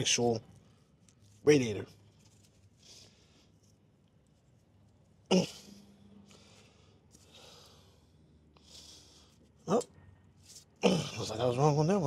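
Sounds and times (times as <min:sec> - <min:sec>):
grunt-like vocal sound: 0:05.3 - 0:05.7, 0:10.8 - 0:11.4
man breathing: 0:05.6 - 0:09.5.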